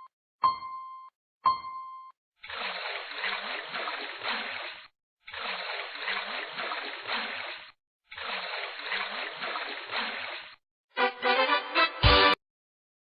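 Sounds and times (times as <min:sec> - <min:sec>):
water splashing: 0:02.4 - 0:10.6.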